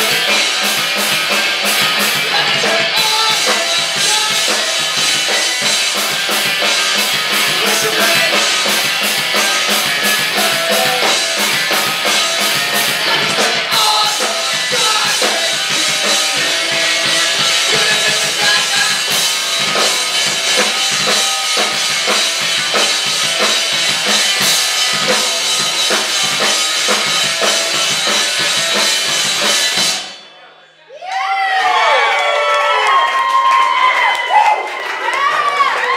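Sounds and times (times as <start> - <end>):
electric bass: 0.0 - 30.1
distorted electric guitar: 0.0 - 30.3
drum kit: 0.0 - 30.4.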